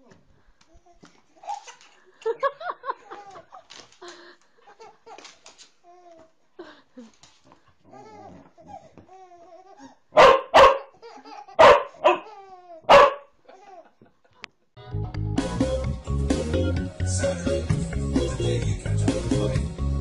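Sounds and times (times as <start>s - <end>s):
dog barking: 10.2s - 10.9s, 11.6s - 12.3s, 12.9s - 13.3s.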